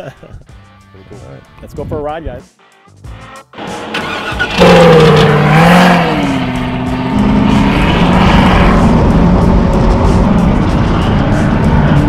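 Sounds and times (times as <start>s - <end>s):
truck engine revving: 3.6s - 12.0s.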